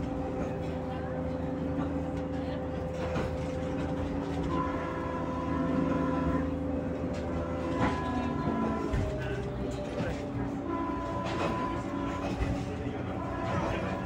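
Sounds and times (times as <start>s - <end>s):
train car low rumble: 0.0s - 14.0s.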